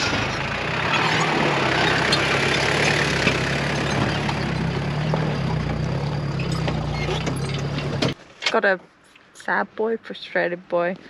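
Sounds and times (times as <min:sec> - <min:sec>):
vehicle engine running low: 0:00.0 - 0:08.2
tyres on stones: 0:00.0 - 0:08.7.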